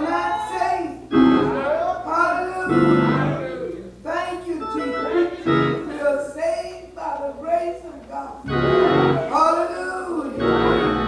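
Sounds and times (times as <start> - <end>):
woman preaching: 0.0 - 1.1, 5.8 - 8.4, 9.2 - 10.7
church organ chords: 0.0 - 6.4, 8.4 - 11.0.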